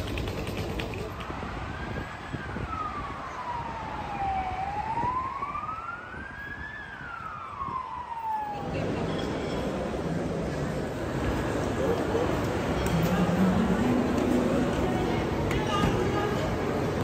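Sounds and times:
highway traffic hum: 0.0s - 17.0s
emergency vehicle siren wailing: 1.2s - 9.3s.

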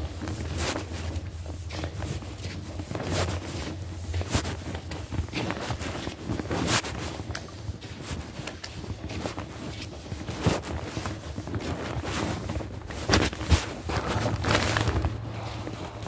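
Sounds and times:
footsteps in tunnel: 0.0s - 16.0s
low steady hum: 10.2s - 16.0s.

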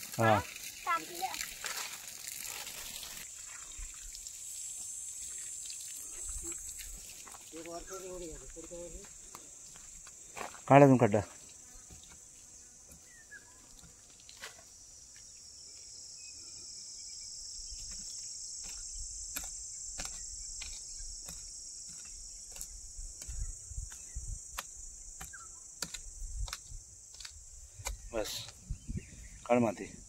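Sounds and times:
high-pitched insect chorus: 0.0s - 30.0s
hand blade chopping into soil: 17.8s - 28.1s.

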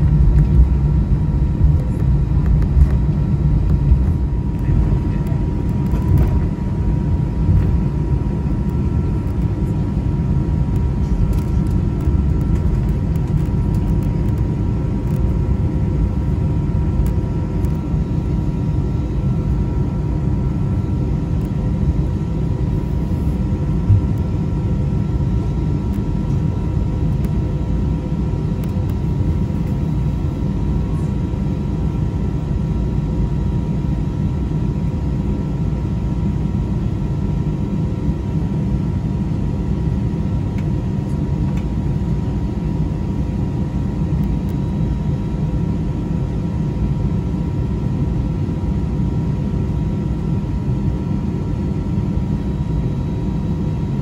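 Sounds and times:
high whine: 0.0s - 32.8s
airplane cabin rumble: 0.0s - 54.0s.

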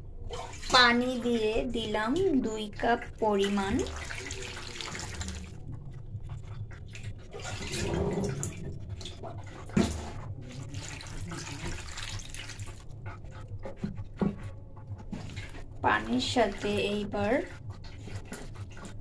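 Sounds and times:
water splashing into a pan: 3.4s - 5.5s, 9.7s - 12.8s.

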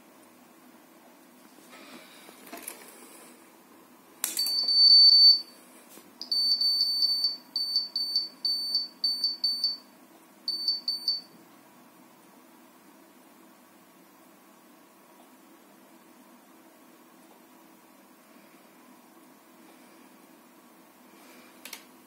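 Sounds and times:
card reader beeping: 4.3s - 5.5s.

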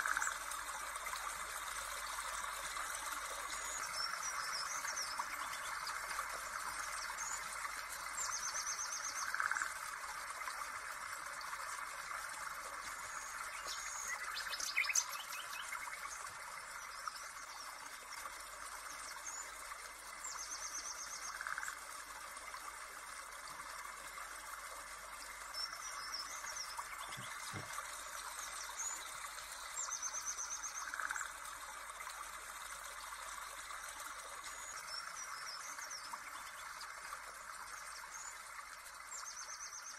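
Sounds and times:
rushing water hiss: 26.0s - 30.0s
birds chirping: 26.2s - 27.8s.

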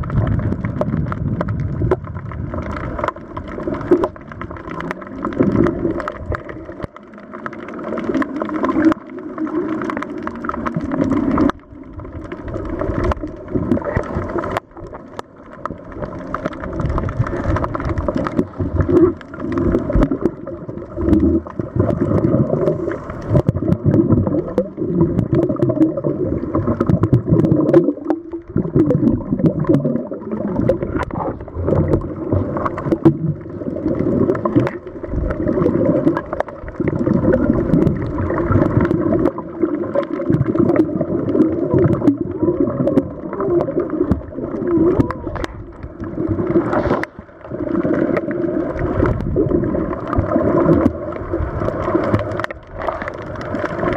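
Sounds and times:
underwater air bubbling: 0.0s - 53.9s.

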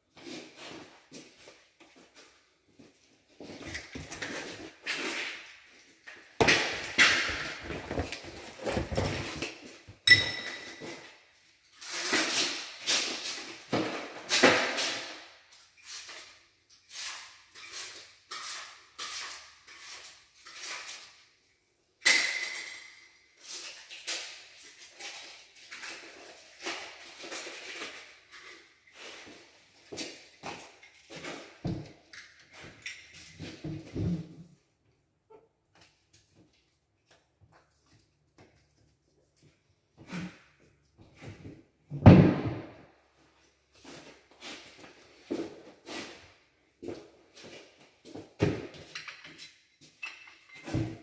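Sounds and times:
tools and tiles clattering: 3.6s - 15.2s, 22.0s - 34.5s, 48.4s - 51.0s.

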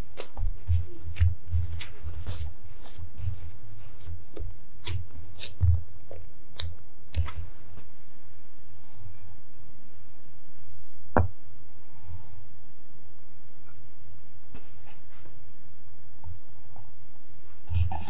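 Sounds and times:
hands patting dough: 0.0s - 7.9s.

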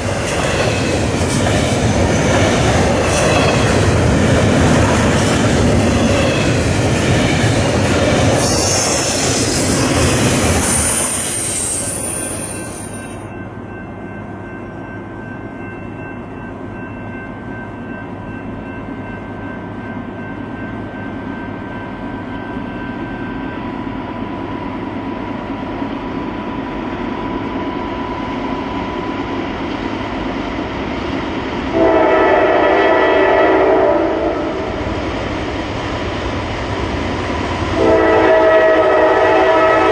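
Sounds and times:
train rumbling past: 0.0s - 39.9s
train horn blast: 31.7s - 34.8s, 37.8s - 39.9s.

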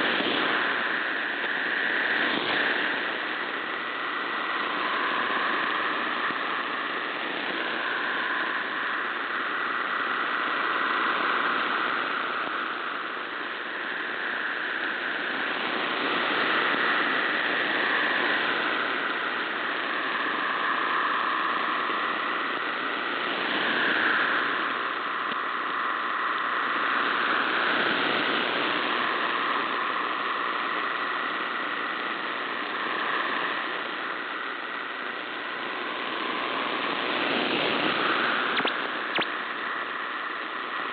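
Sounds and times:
shortwave static: 0.0s - 40.9s
hissing digital data tones: 38.5s - 39.3s.

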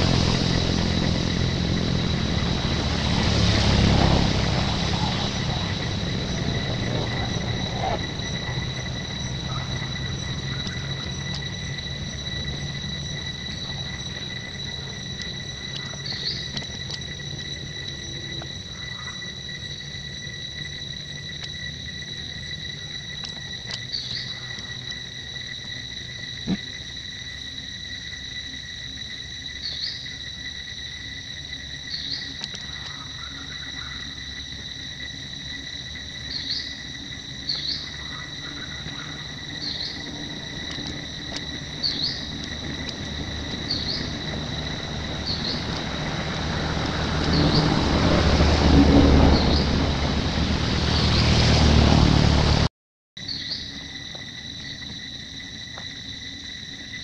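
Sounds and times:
rushing noise: 0.0s - 18.8s, 37.8s - 52.7s
high insect drone: 0.0s - 57.0s.

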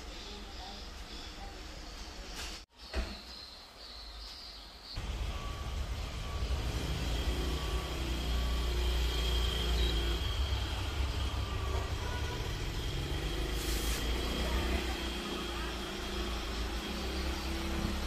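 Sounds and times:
faint high whine: 4.8s - 18.0s
wall fan airflow rumbling: 5.0s - 18.0s.

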